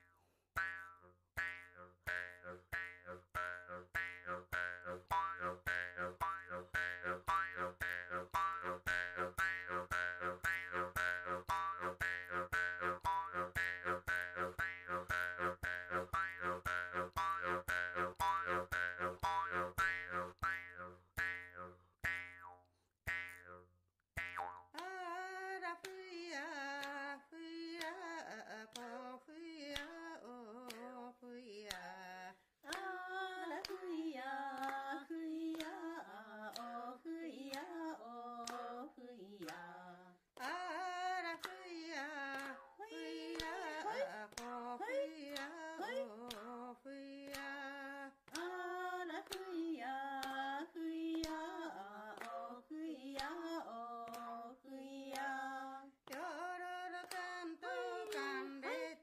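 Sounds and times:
woman singing: 24.8 - 59.0.

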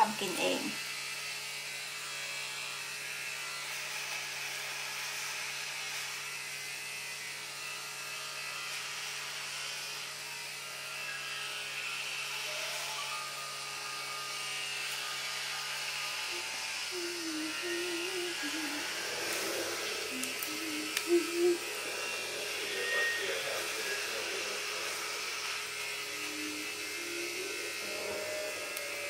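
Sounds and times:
induction hob buzzing hum: 12.4 - 23.2.

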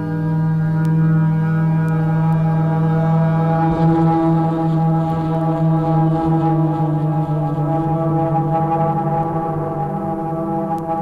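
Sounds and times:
higher drone tone: 0.0 - 11.0
low droning tone: 0.0 - 11.0.

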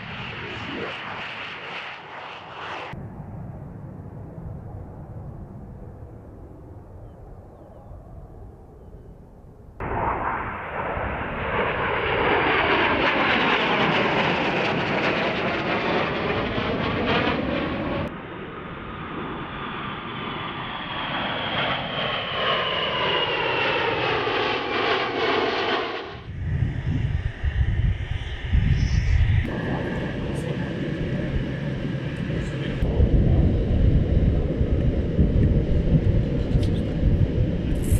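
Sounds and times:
jet engine roar overhead: 0.0 - 37.9.

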